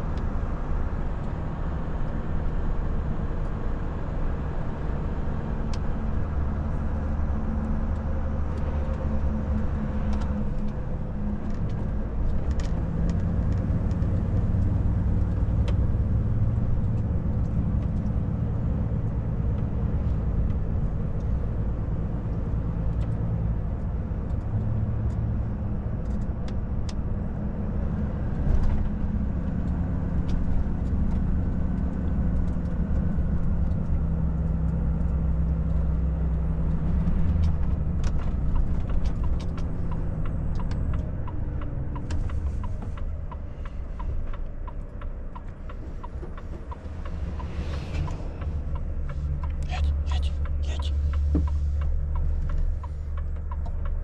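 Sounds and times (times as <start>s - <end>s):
truck diesel engine in cab: 0.0s - 54.0s
light regular ticks: 29.5s - 54.0s.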